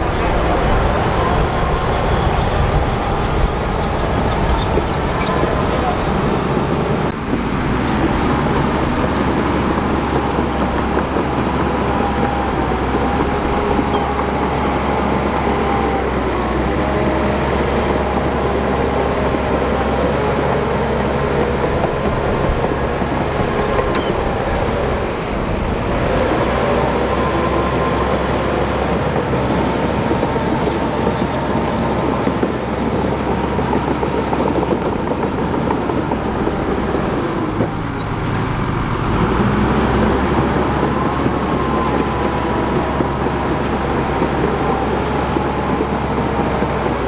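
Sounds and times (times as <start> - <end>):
tracks rattling: 0.0 - 15.8
bulldozer diesel engine running: 0.0 - 47.0.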